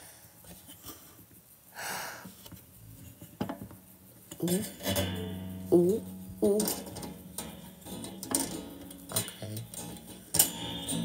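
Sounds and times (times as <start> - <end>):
metal stand arm clicking and clattering: 3.0 - 11.0
person making wordless vocal sound: 4.4 - 4.8, 5.7 - 6.8.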